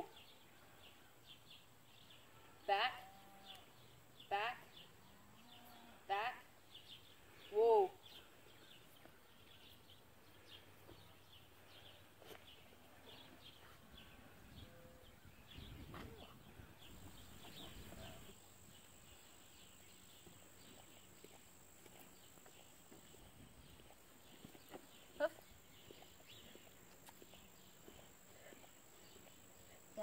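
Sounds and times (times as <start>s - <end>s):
small birds chirping: 6.5s - 30.0s.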